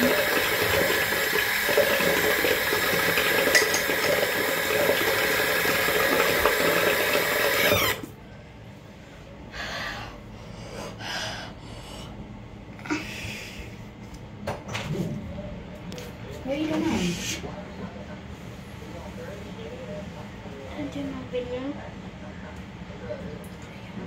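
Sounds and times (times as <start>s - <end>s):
tap running into sink: 0.0s - 7.5s.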